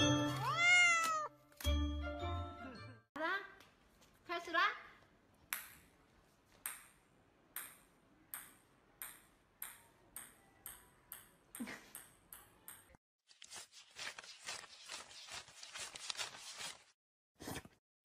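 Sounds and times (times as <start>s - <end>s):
ping-pong ball bouncing on floor: 5.5s - 5.9s, 6.6s - 13.0s.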